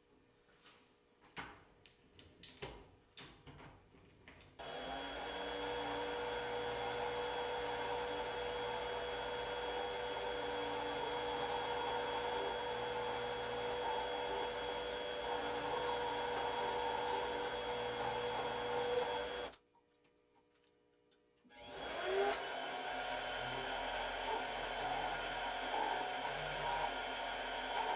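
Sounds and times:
lathe motor whining: 4.6 - 19.6, 21.5 - 27.9.

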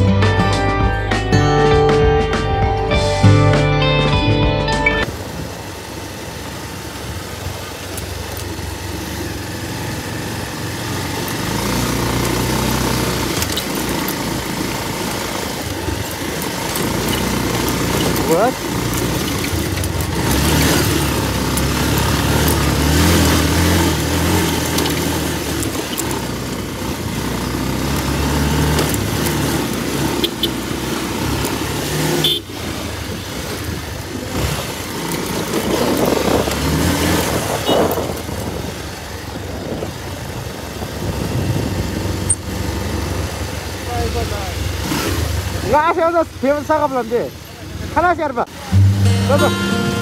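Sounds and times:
road noise: 0.0 - 50.0
motorcycle engine running: 5.0 - 50.0
wind noise: 35.5 - 42.2.

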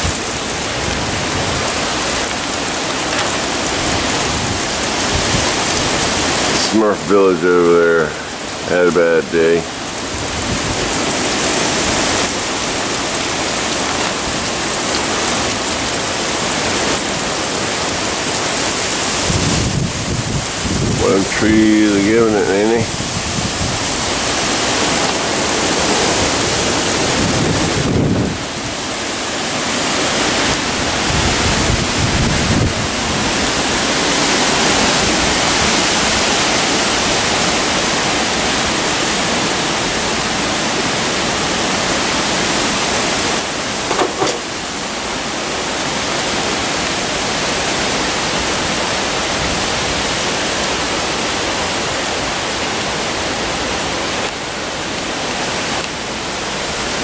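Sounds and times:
rain: 0.0 - 57.0
wind gusting through trees: 0.0 - 57.0.

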